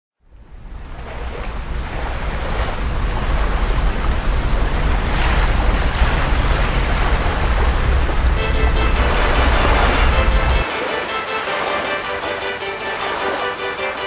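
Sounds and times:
deep rumble: 0.2s - 10.6s
rushing sea and wind: 0.3s - 14.0s
music: 8.4s - 14.0s.

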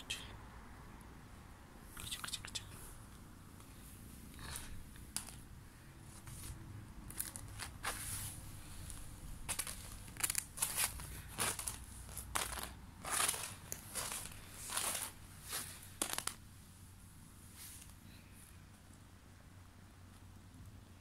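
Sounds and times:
kitten scratching on plastic mat: 6.1s - 16.4s.

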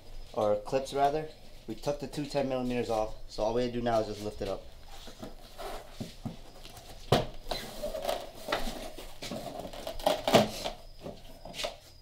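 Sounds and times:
plastic scraping and creaking: 7.5s - 11.8s.

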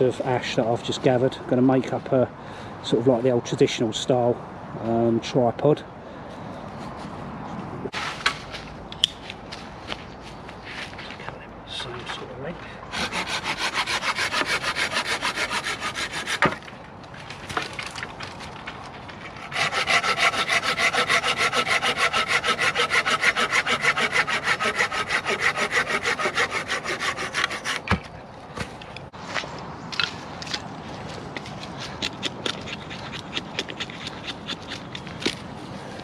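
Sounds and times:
hand saw cutting wood: 12.9s - 16.7s, 19.1s - 28.1s, 31.5s - 35.4s.

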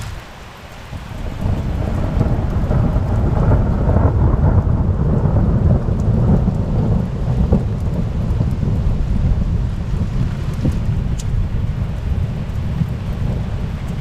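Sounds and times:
rain falling: 0.0s - 14.0s
rolling thunder: 0.0s - 14.0s.

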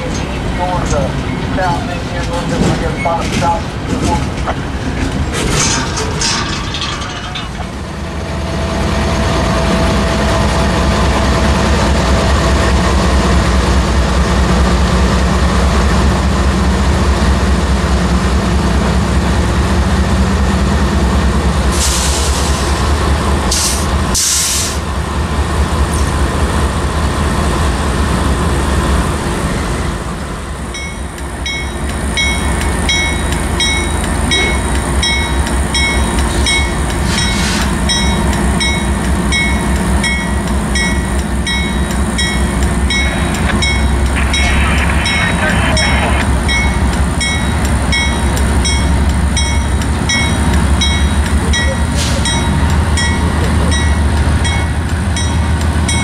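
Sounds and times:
diesel locomotives rumbling: 0.0s - 56.0s
locomotive bell ringing: 30.8s - 56.0s.

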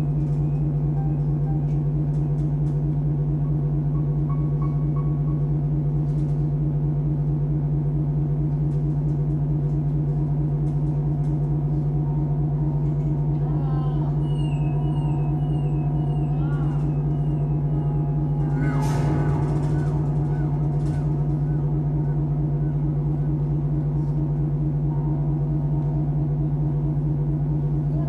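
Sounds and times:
ambient drone music: 0.0s - 28.0s
gliding tones: 15.8s - 23.6s.

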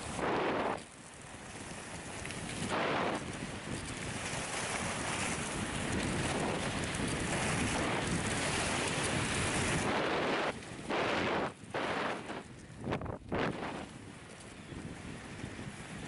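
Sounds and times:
skis hissing over snow: 0.0s - 0.8s, 7.3s - 12.5s
wind rushing over microphone: 0.0s - 16.0s.

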